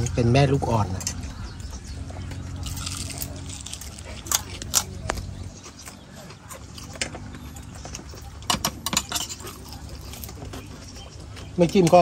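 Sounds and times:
steady low hum: 0.0s - 12.0s
dishes and utensils clinking: 8.0s - 10.3s.

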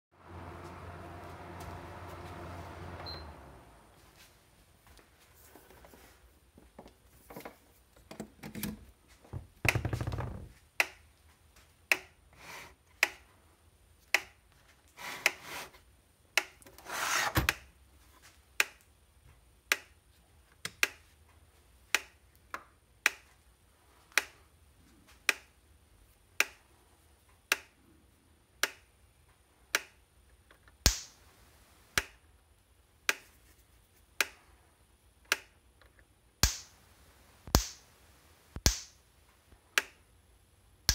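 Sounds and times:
device scraping on bench: 16.8s - 17.4s.

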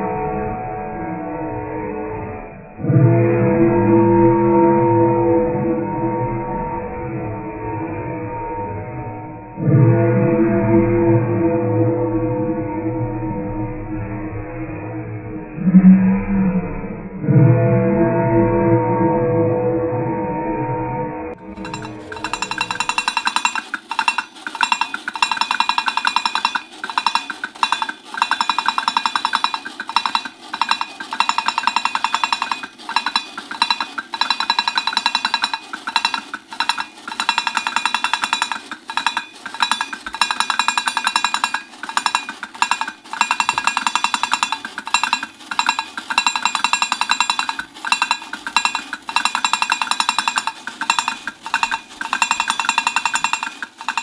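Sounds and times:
toy beating metal bongo drums: 21.4s - 54.0s.

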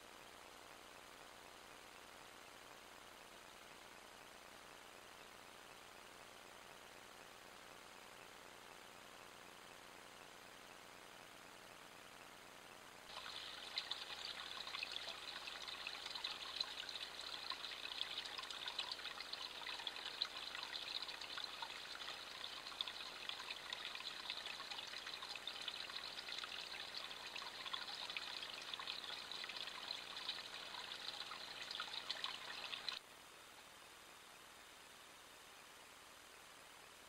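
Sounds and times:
stream trickling over stones: 13.1s - 33.0s.

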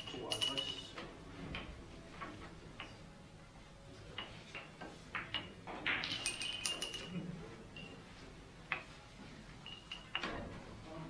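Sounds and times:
billiard balls clicking: 4.1s - 8.0s, 8.7s - 9.0s.

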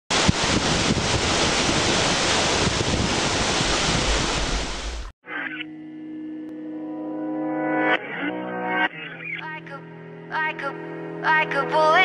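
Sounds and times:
waterfall rushing: 0.1s - 5.1s
wind rumbling on microphone: 0.1s - 5.1s
music: 5.2s - 12.0s.

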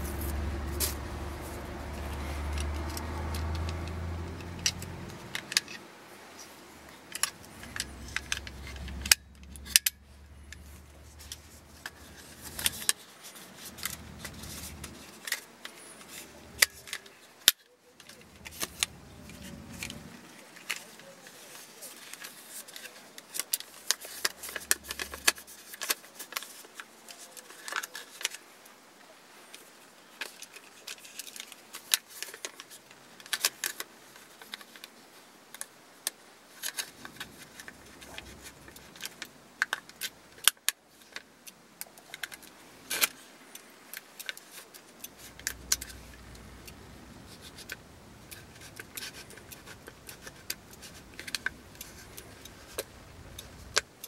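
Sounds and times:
sharp plastic snaps: 0.1s - 5.8s
film insert clicking and rattling: 22.0s - 28.4s, 36.6s - 43.2s, 47.4s - 53.9s.

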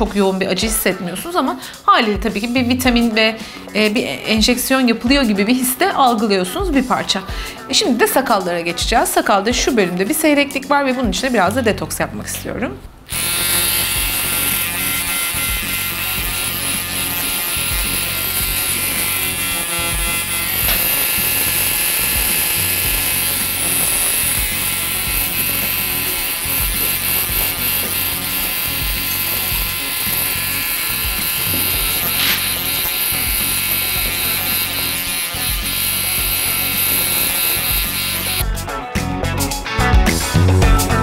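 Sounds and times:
background music: 0.0s - 41.0s
electric device buzzing: 13.1s - 38.6s.

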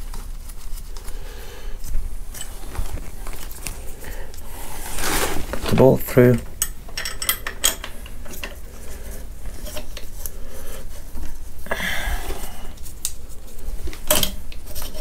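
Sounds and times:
light metal clicks and scraping: 5.6s - 10.3s.

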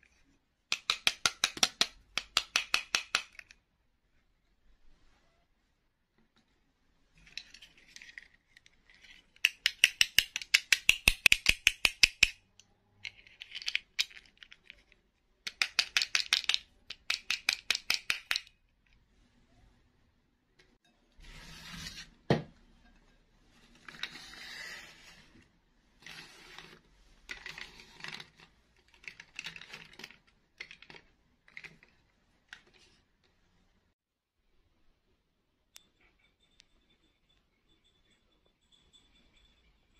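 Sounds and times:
plastic clicks and rattles: 7.2s - 18.6s, 27.3s - 32.9s.

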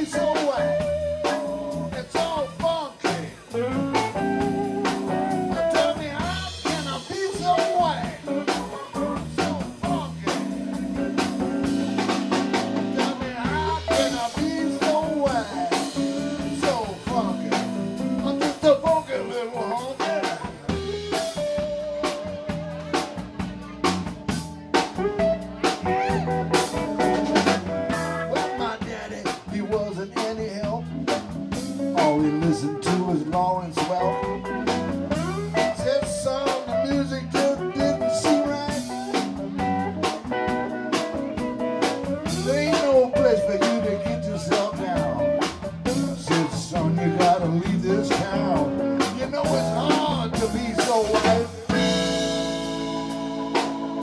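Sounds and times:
bass: 0.0s - 54.0s
electric guitar: 0.0s - 54.0s
organ: 0.0s - 54.0s
drum hits: 44.0s - 54.0s.

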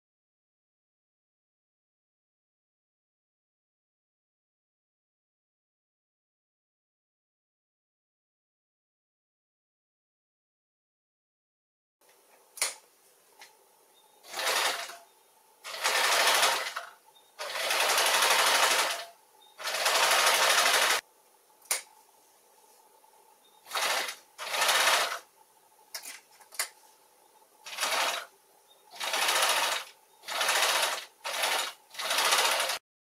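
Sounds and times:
sewing machine stitching: 14.2s - 15.0s, 15.7s - 21.0s, 23.7s - 25.2s, 27.7s - 28.3s, 28.9s - 32.8s
sharp clicks: 21.6s - 21.9s.

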